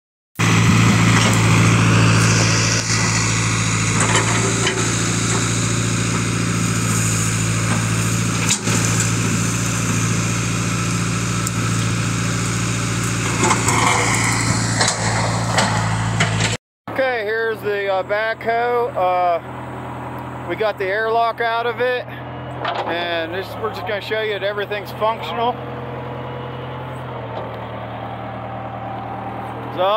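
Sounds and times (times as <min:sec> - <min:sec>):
backhoe engine running: 0:00.4 - 0:29.9.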